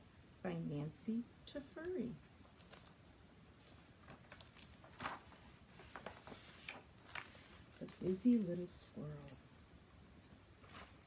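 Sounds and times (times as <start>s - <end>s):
book pages rustling: 2.4s - 9.4s, 10.3s - 11.0s.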